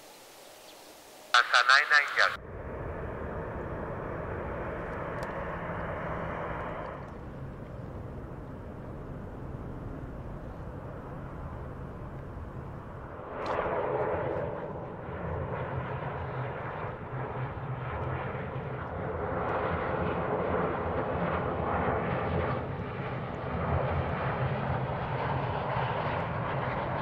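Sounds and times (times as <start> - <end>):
jet engines running: 0.0 - 27.0.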